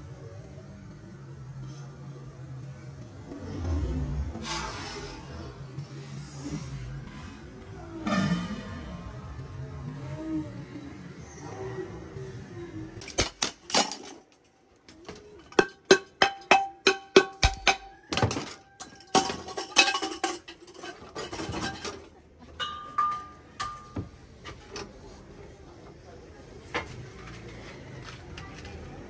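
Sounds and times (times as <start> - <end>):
metallic clinks and clanks: 13.0 - 24.9.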